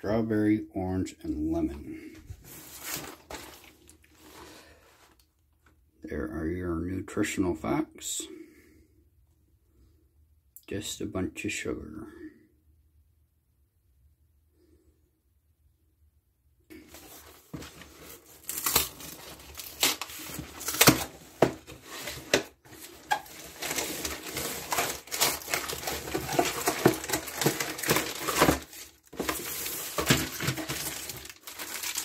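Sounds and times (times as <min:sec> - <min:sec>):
plastic packaging crinkling: 0:02.5 - 0:05.2, 0:16.7 - 0:32.0.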